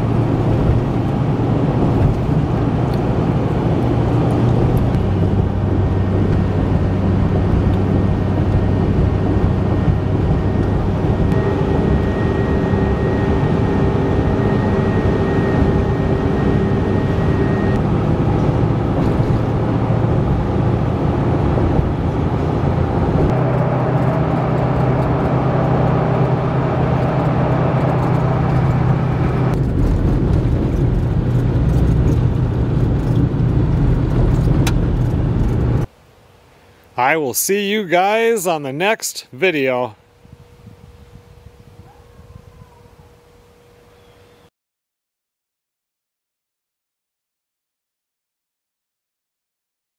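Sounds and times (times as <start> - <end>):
vehicle engine and tyre drone: 0.0 - 35.9.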